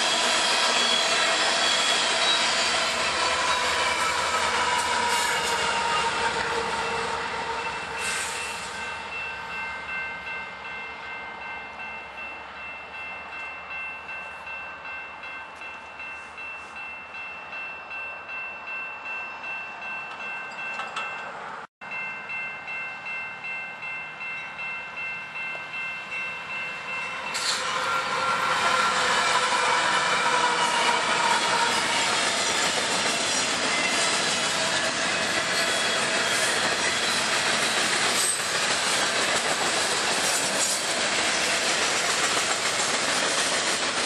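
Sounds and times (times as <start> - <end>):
crossing bell ringing: 0.0 - 44.0
diesel locomotive passing: 0.0 - 44.0
diesel train approaching: 0.0 - 44.0.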